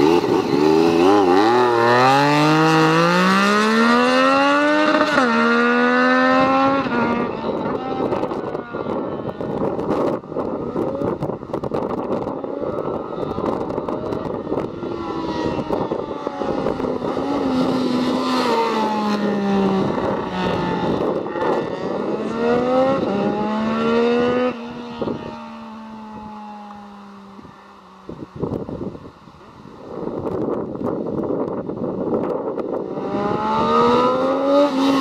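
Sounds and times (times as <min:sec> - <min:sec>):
motorcycle accelerating and shifting gears: 0:00.0 - 0:35.0.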